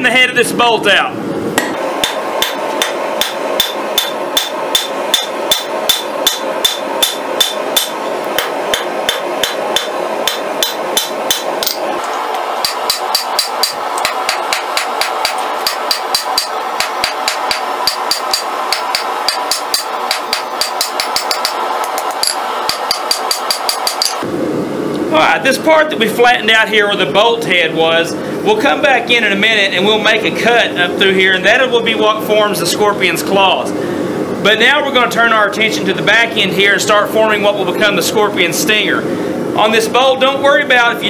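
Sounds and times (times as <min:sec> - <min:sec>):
hammer striking steel on anvil: 0:01.6 - 0:11.8, 0:12.6 - 0:24.2.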